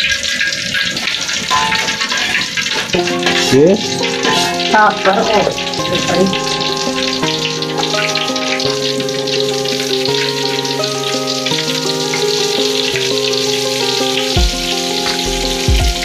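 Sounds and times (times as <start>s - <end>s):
oil sizzling in a wok: 0.0s - 16.0s
metal spatula stirring: 1.5s - 6.7s
background music with held notes: 1.5s - 16.0s.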